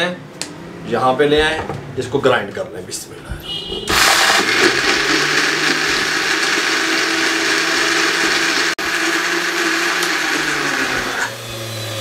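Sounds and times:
blender running: 3.9s - 12.0s.

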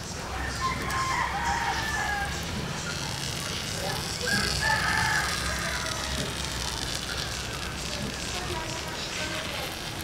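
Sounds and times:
rooster crowing: 0.3s - 2.4s, 4.2s - 6.1s.

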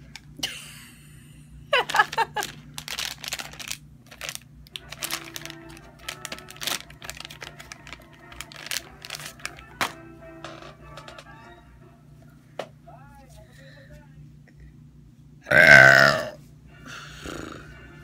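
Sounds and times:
plastic pack crinkling: 1.8s - 10.0s.

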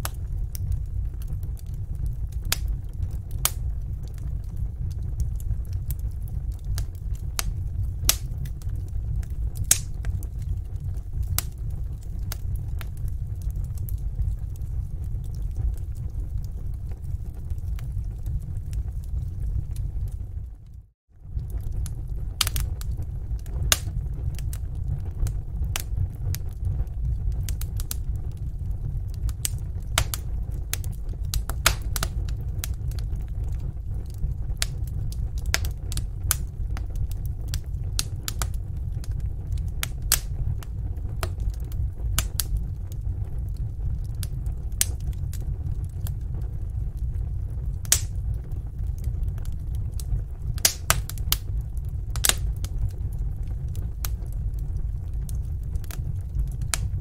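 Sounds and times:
fire crackling and popping: 0.0s - 57.0s
fire rumbling: 0.0s - 57.0s.

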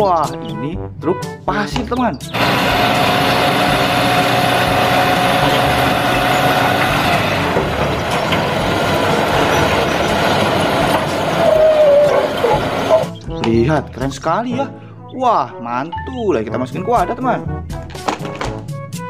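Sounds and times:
truck engine running under load: 2.3s - 13.2s.

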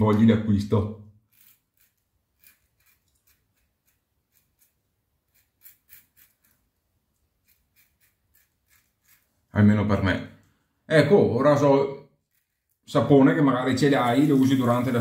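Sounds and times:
razor scraping stubble: 1.2s - 9.5s, 12.2s - 12.9s, 13.6s - 15.0s.

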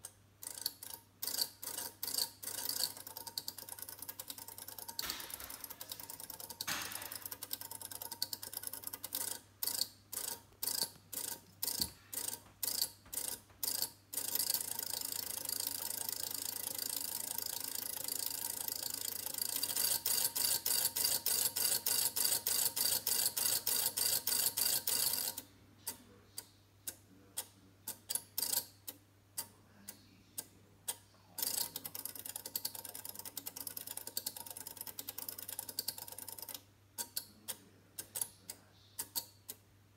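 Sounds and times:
display segments clicking: 0.0s - 29.5s.

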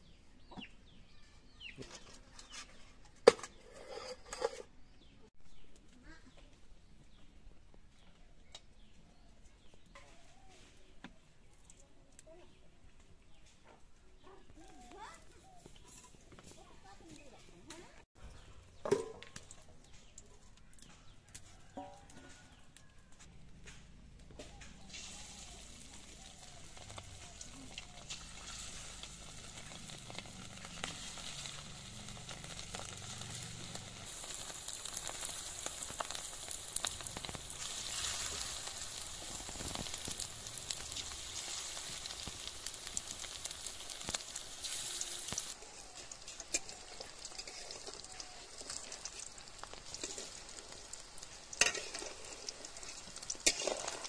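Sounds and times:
hot oil sizzling and crackling: 24.3s - 54.0s.

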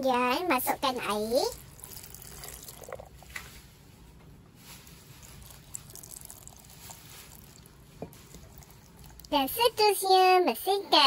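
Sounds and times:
water trickling into blender jar: 1.5s - 3.3s, 5.2s - 9.5s.

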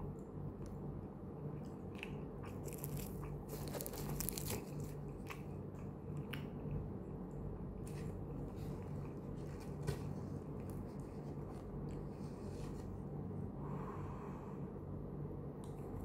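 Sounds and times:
steady low hum: 0.0s - 16.0s
chewing: 1.6s - 9.3s
styrofoam box crackling: 2.8s - 4.8s.

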